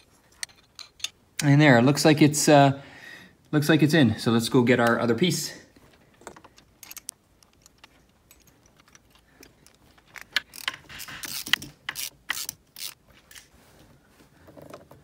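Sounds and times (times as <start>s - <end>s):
hand ratchet clicking: 10.2s - 13.0s.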